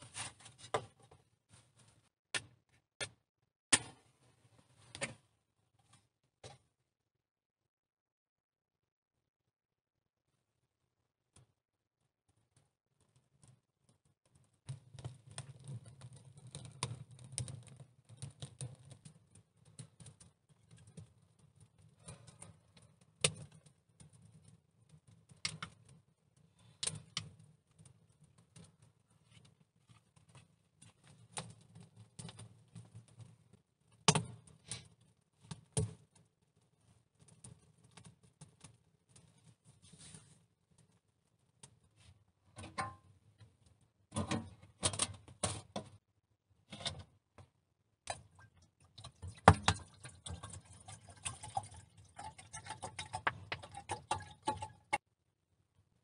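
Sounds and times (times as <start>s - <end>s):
wood fire crackling and snapping: 14.3s - 39.6s.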